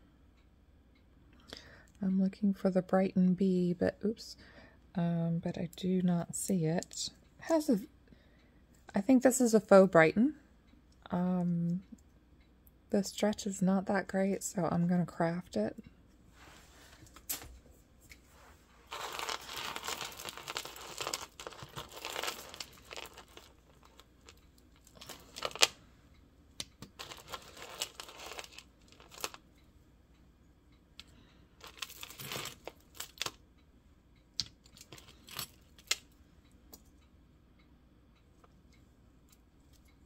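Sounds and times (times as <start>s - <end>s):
hands rustling through necklaces: 18.8s - 25.7s, 26.9s - 29.4s
beads and chain rattling: 18.9s - 25.7s, 26.9s - 29.4s, 31.6s - 33.3s.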